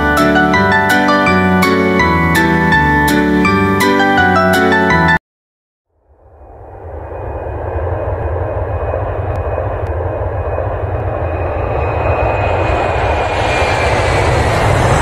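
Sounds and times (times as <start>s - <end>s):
high-pitched engine whine: 5.9s - 15.0s
jet engines roaring: 6.1s - 15.0s.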